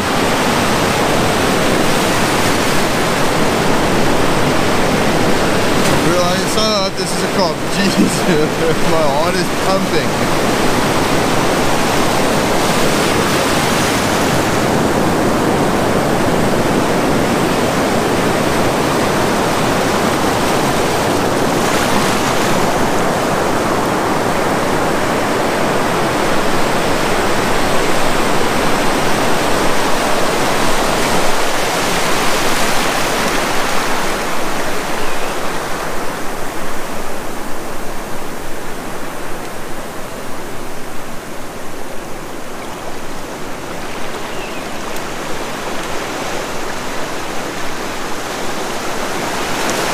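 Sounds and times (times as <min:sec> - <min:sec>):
ocean surf breaking: 0:00.0 - 0:49.9.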